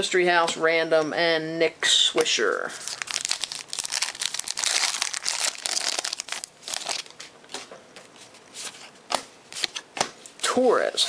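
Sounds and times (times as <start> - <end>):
wrapper tearing and crinkling: 2.8 - 7.2.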